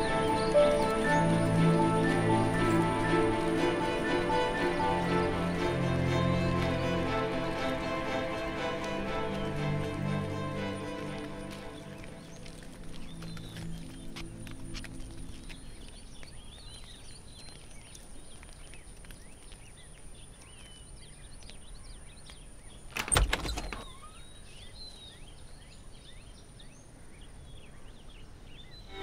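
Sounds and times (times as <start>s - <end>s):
bird chirps: 11.3s - 29.0s
door unlatched and opened: 22.9s - 24.0s.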